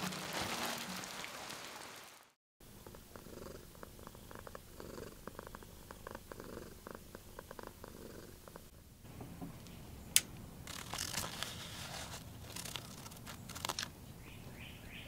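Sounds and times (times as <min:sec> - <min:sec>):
faint crackle: 0:00.0 - 0:02.0, 0:10.7 - 0:13.9
cat purring: 0:02.7 - 0:08.7.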